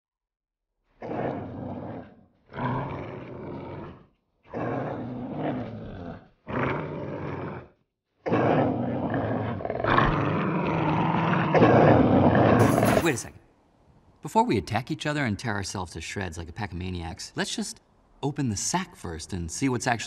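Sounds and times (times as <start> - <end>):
dogs growling: 1.0 - 13.2.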